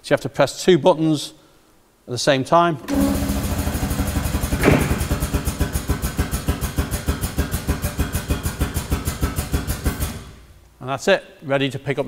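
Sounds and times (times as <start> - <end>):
air-driven pump pulsing: 2.8 - 10.5.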